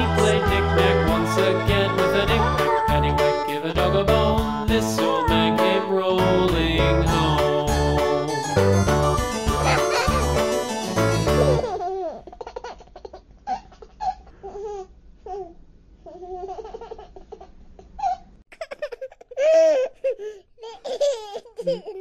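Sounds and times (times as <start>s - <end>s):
baby babbling and laughing: 2.4s - 3.5s, 9.4s - 10.4s, 11.3s - 15.5s, 16.1s - 22.0s.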